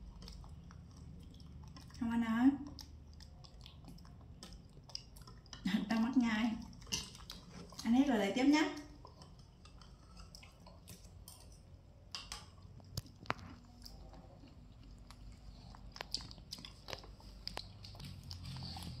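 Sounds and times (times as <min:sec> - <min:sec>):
quiet chewing: 0:00.0 - 0:19.0.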